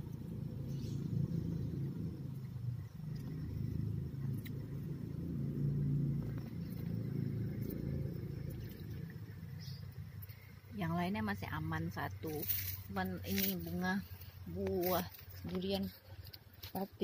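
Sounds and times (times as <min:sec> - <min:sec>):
low engine rumble: 0:00.0 - 0:17.0.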